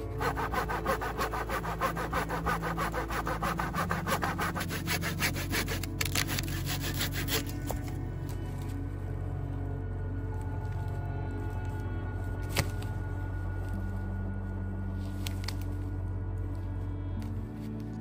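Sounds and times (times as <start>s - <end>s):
hand saw cutting wood: 0.0s - 7.9s.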